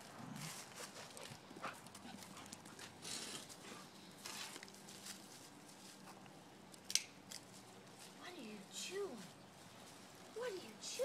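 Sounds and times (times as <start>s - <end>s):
dog paws crunching leaves: 3.1s - 6.1s.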